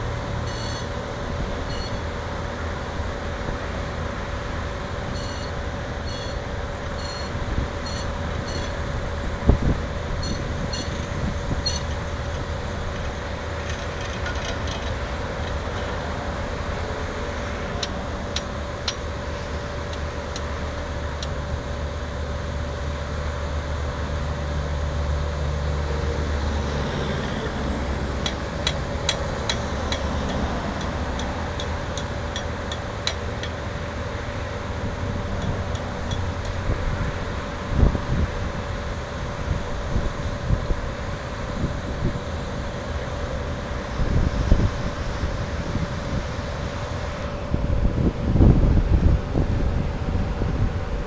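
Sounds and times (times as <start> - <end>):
drill rig engine running: 0.0 - 51.0
steady whine: 0.0 - 51.0
sharp metallic ticks: 17.8 - 19.0, 28.2 - 33.6.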